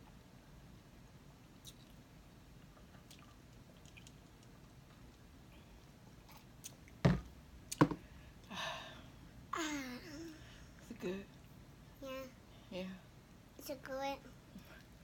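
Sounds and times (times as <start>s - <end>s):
cups knocking on table: 7.1s - 8.0s.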